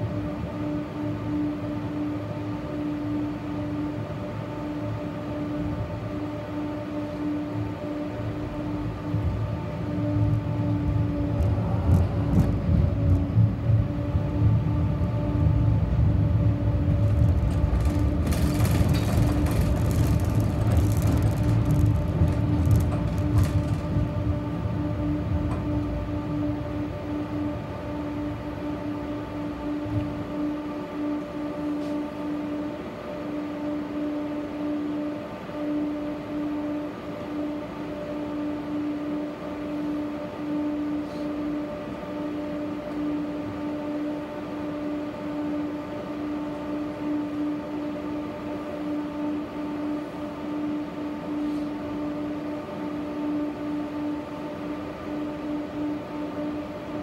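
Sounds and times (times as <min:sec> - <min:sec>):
tram interior hum: 0:00.0 - 0:57.0
tram running noise: 0:03.5 - 0:33.3.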